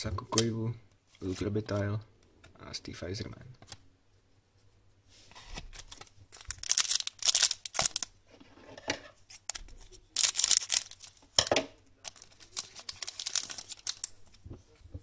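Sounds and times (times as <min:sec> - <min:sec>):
plastic wrapper tearing and crinkling: 0:05.5 - 0:08.1, 0:09.4 - 0:11.3, 0:12.1 - 0:14.2.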